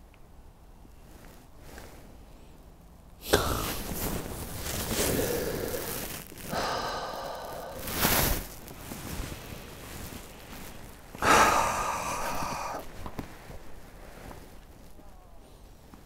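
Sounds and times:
man exhaling breathily: 3.2 - 8.5, 11.2 - 13.0
man groaning: 5.0 - 7.8, 11.2 - 12.8.

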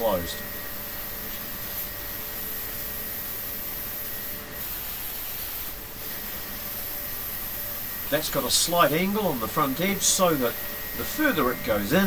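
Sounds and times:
plasma cutter hiss: 0.0 - 12.0.

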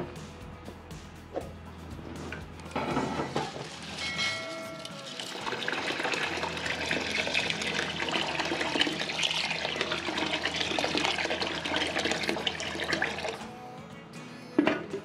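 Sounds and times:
water pouring into pot: 3.4 - 13.4.

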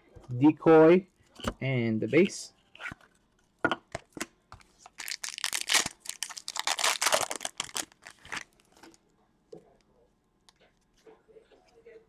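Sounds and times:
foil wrapper tearing and crinkling: 4.9 - 8.6.

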